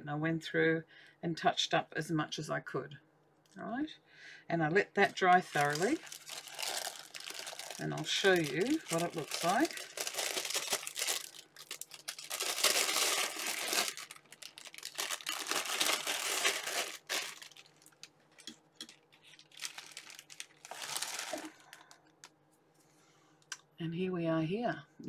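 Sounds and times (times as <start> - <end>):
plastic bag crinkling: 4.8 - 22.3.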